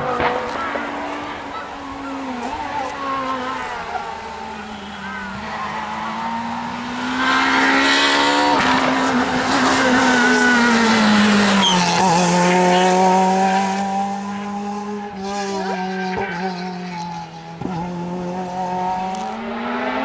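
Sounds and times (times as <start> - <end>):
rally car passing at high revs: 0.0 - 20.0.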